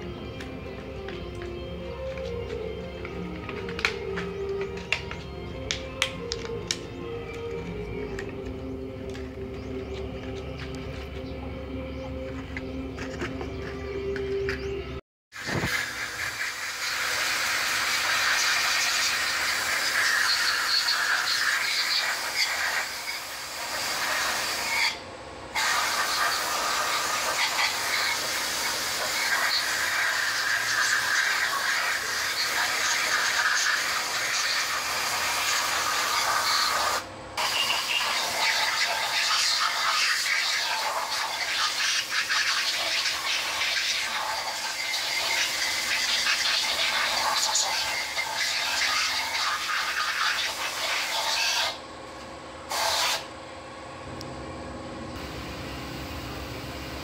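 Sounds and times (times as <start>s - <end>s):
air spray gun hissing: 15.4s - 25.0s, 25.6s - 51.8s, 52.7s - 53.3s.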